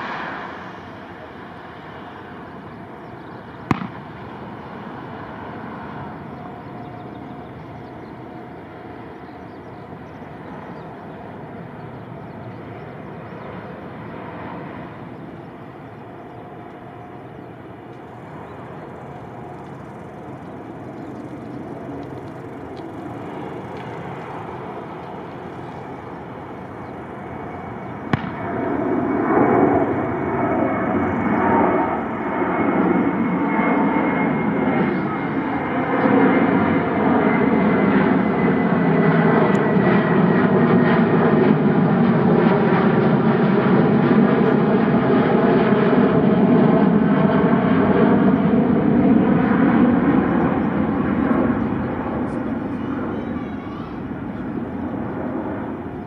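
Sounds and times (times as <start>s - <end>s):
airliner engine rumble: 0.0s - 56.0s.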